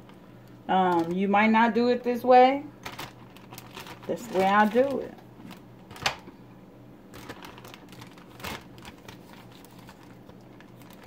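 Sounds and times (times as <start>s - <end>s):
plastic bag crinkling: 0.0s - 1.2s, 2.7s - 6.3s, 7.0s - 11.0s.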